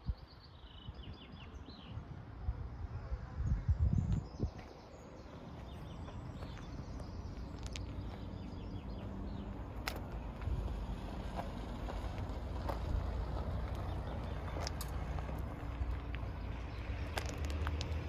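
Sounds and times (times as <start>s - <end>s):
small birds chirping: 0.0s - 2.1s, 3.4s - 10.6s, 12.8s - 18.0s
wind rumble on microphone: 0.0s - 4.8s.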